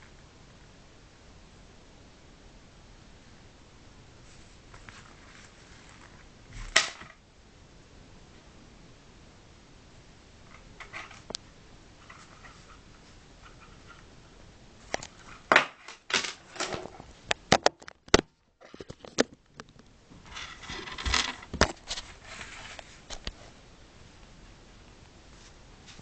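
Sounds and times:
rustling and scraping on table: 0:04.2 - 0:07.2, 0:10.5 - 0:11.3, 0:12.0 - 0:14.1, 0:20.2 - 0:23.6.

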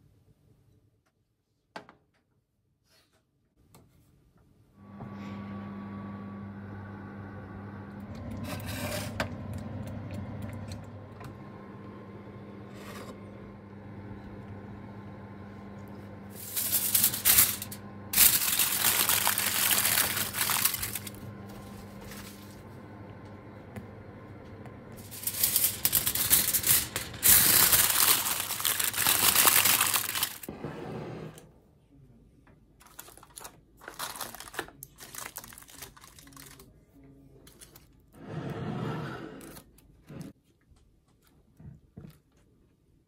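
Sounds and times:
microwave oven humming: 0:04.8 - 0:31.5
aluminium foil crinkling: 0:16.3 - 0:22.6, 0:25.0 - 0:30.5, 0:32.8 - 0:38.0.

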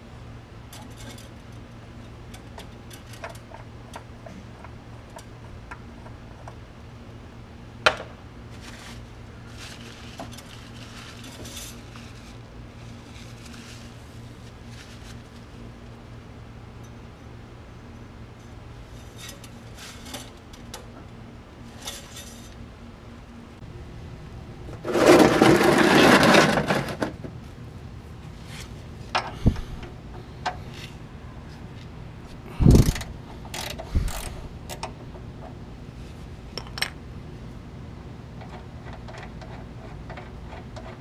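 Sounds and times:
rustling: 0:08.5 - 0:15.7.

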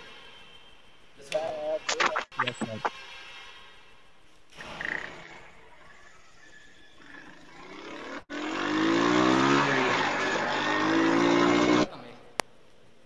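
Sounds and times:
engine revving: 0:07.0 - 0:12.0.

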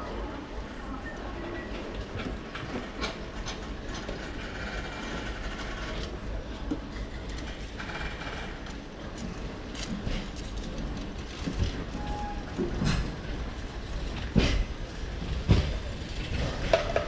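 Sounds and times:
train car rumbling: 0:00.0 - 0:17.0
wheels clicking over rail joints: 0:15.4 - 0:17.0.

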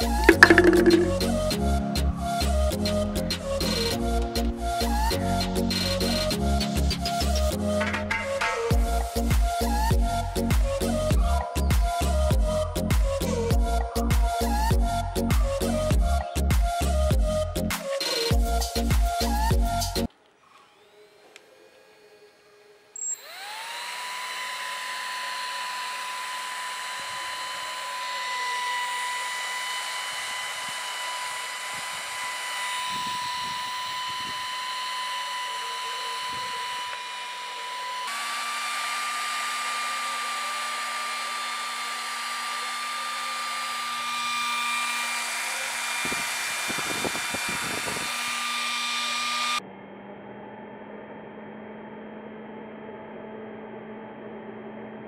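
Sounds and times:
small electric motor whine: 0:17.8 - 0:49.6.

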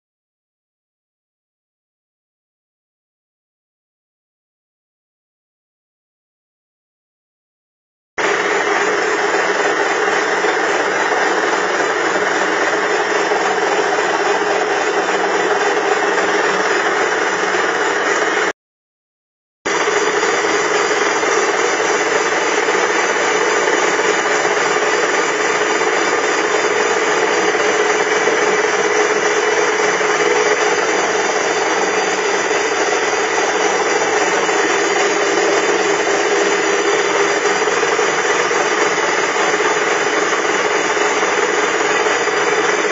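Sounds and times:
lathe machine drone: 0:08.2 - 0:18.5, 0:19.7 - 0:42.9.

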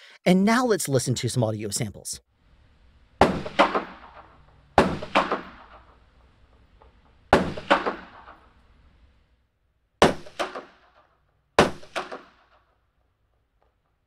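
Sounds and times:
gunshots: 0:03.2 - 0:06.0, 0:07.3 - 0:08.6, 0:10.0 - 0:12.7.

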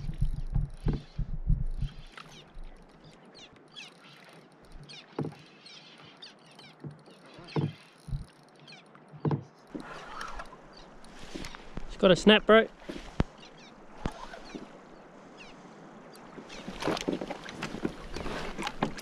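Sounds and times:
knocks and thumps on kayak: 0:00.0 - 0:02.8, 0:06.8 - 0:08.3, 0:09.2 - 0:09.5, 0:16.3 - 0:19.0.

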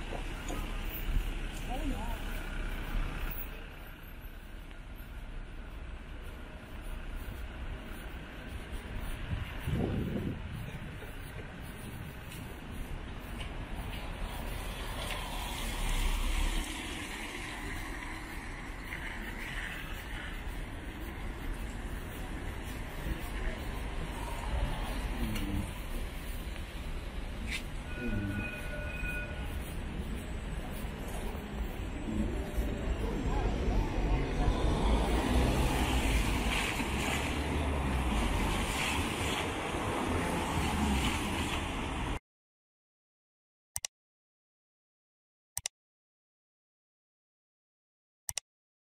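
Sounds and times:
city street traffic: 0:00.0 - 0:42.2
tram passing: 0:00.0 - 0:42.2
wind buffeting the microphone: 0:08.0 - 0:14.0.

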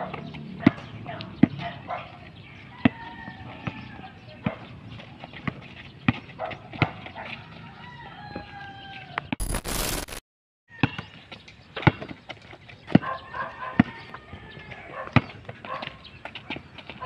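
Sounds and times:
basketball bouncing on concrete: 0:05.4 - 0:07.3, 0:15.2 - 0:15.9
loud burst of noise: 0:09.4 - 0:10.2.

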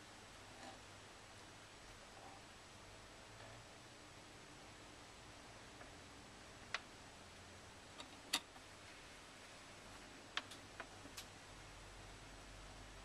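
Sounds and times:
faint hiss: 0:00.0 - 0:13.0.

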